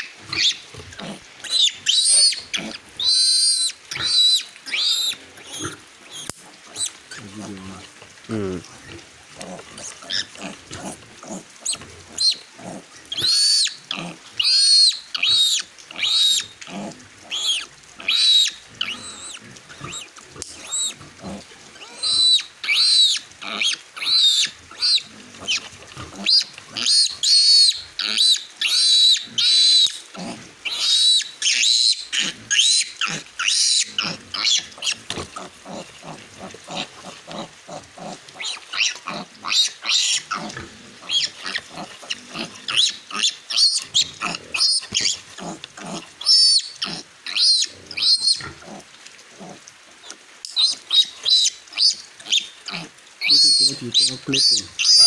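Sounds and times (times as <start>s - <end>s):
piglet squealing: 0.0s - 7.3s, 13.1s - 16.5s, 17.3s - 21.0s, 21.8s - 25.6s, 26.2s - 30.0s, 30.7s - 35.0s, 36.8s - 45.6s, 46.2s - 48.5s, 50.6s - 55.0s.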